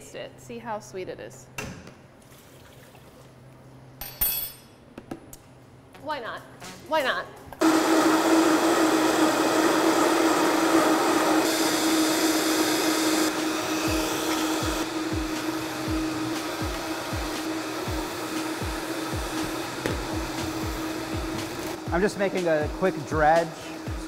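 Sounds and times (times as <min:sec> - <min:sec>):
blender whirring: 0:07.6 - 0:24.0.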